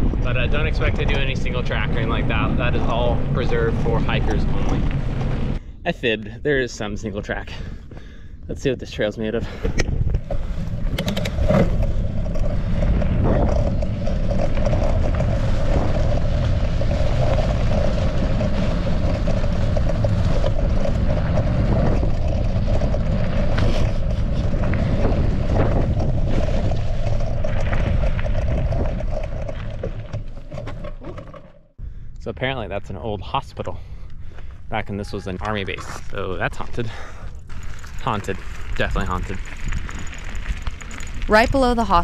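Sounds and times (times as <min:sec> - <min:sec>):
bike rattles and knocks: 0:00.0 - 0:05.6, 0:09.5 - 0:31.8, 0:35.4 - 0:41.4
tyres rolling over dirt: 0:00.0 - 0:05.6, 0:09.5 - 0:31.7, 0:34.4 - 0:42.0
wind rushing over microphone: 0:00.0 - 0:30.1.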